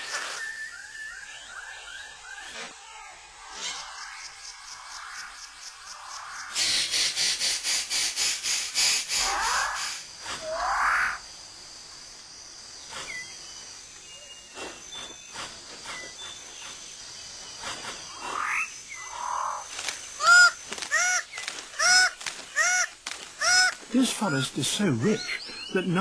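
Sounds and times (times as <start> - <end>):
faint chirps and whistled notes: 0.0 - 21.6, 23.9 - 26.0
repeated animal calls: 0.1 - 11.3, 17.6 - 26.0.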